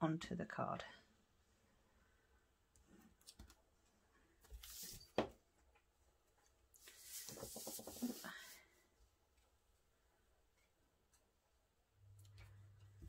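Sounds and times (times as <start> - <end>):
cardstock rustling: 6.8 - 8.6.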